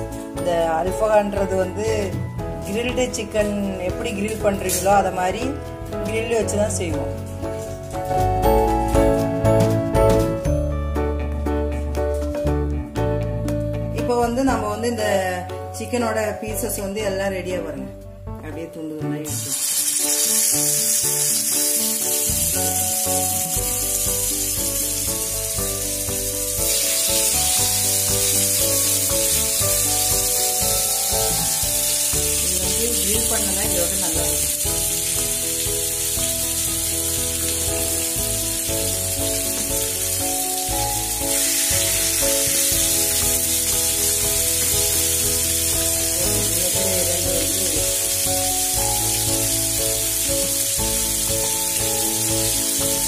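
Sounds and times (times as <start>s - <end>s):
chicken sizzling in hot oil: 19.2s - 53.0s.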